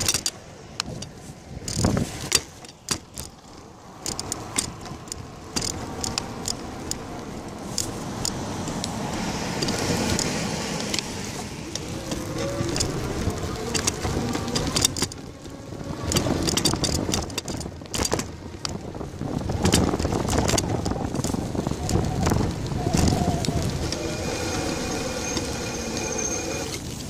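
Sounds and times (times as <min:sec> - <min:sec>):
bicycle rattling clicks: 0:00.0 - 0:27.0
wind and tyre rumble: 0:00.0 - 0:27.0.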